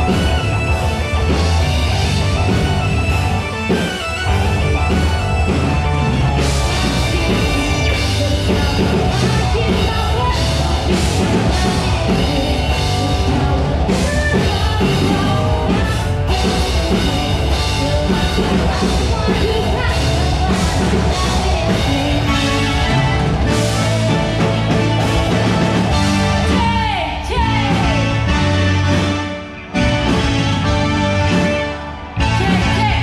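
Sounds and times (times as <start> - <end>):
electric guitars: 0.0 - 33.0
keyboard: 0.0 - 33.0
woman singing into a microphone: 6.8 - 25.1, 26.4 - 28.0, 32.2 - 33.0.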